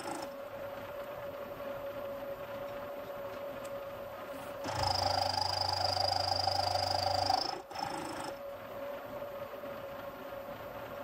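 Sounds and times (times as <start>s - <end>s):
gear cutter rumbling cut: 0.0s - 0.4s, 4.6s - 8.5s
milling spindle whine: 0.0s - 11.0s.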